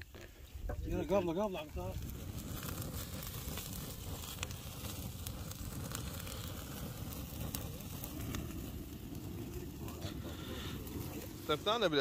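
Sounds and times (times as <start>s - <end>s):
campfire crackling and popping: 0.0s - 12.0s
fire low rush: 0.0s - 12.0s.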